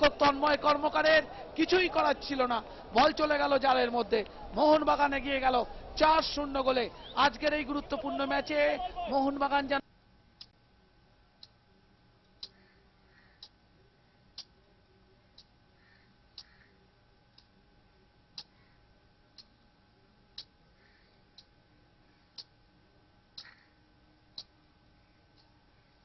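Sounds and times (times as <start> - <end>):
faint steady tone: 0.0 - 26.0
faint sharp ticks: 12.2 - 13.6, 16.3 - 16.7, 20.3 - 21.5, 23.4 - 23.7, 24.3 - 24.6.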